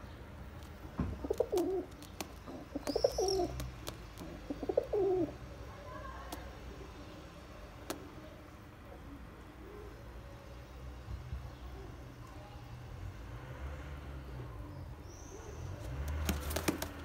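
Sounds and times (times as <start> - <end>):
pigeon cooing: 1.1 - 5.4.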